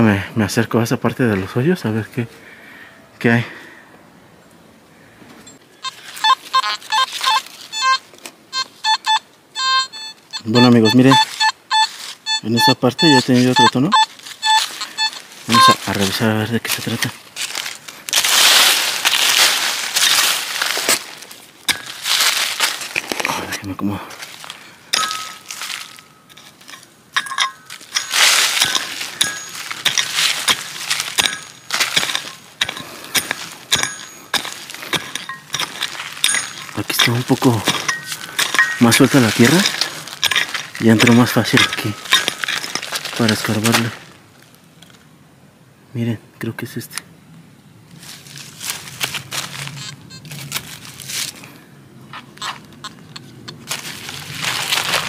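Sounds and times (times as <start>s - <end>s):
hand pick chopping stony soil: 19.0s - 23.4s, 24.4s - 44.1s
metallic clink: 24.9s - 43.3s.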